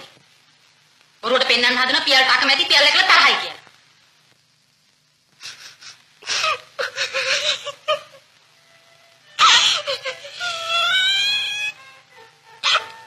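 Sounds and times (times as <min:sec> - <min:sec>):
woman sobbing: 0:05.4 - 0:08.3, 0:09.4 - 0:11.8.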